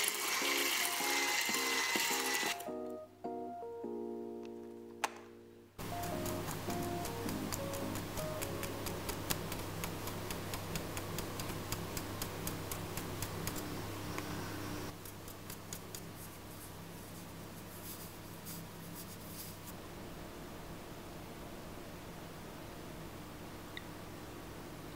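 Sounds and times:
powder sifted through mesh sieve: 5.8s - 19.8s.

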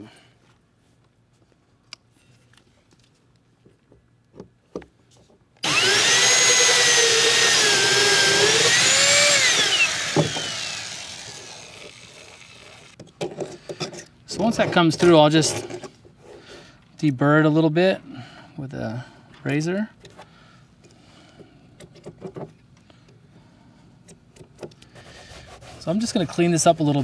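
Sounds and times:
cordless drill whining: 5.6s - 13.0s
small clicks of drill bit: 5.6s - 13.0s.

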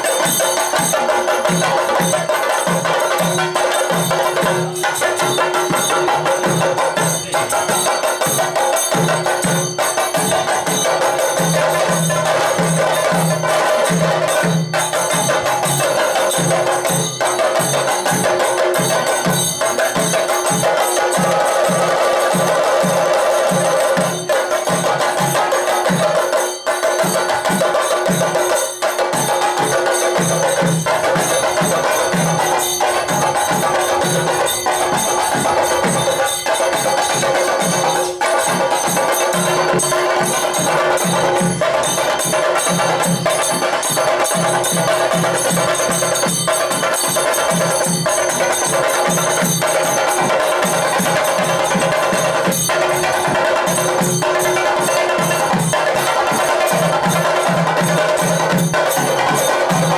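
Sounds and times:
hand cymbals ringing: 0.0s - 59.9s.

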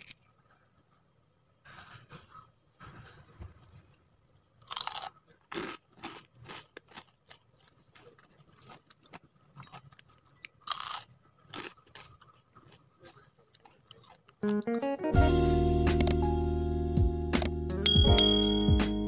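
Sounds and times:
chewing crunches: 4.6s - 14.7s
crunchy bites: 4.6s - 14.8s.

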